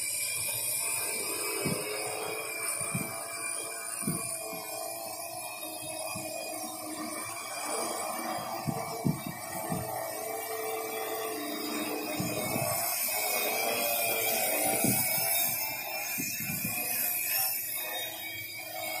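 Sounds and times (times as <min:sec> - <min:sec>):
drone propellers whirring: 0:00.0 - 0:19.0
wind rumble on microphone: 0:00.4 - 0:17.2.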